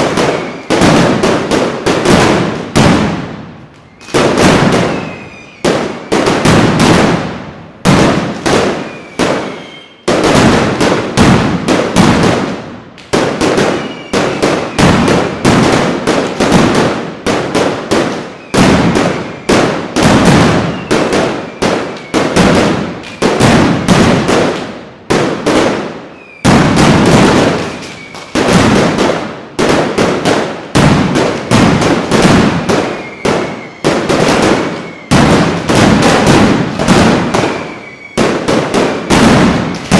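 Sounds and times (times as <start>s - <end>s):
firecrackers banging: 0.0s - 39.9s
short falling whistles: 3.8s - 4.2s, 4.9s - 6.2s, 8.8s - 10.1s, 13.8s - 14.1s, 26.2s - 26.5s, 27.8s - 28.3s, 37.5s - 38.2s.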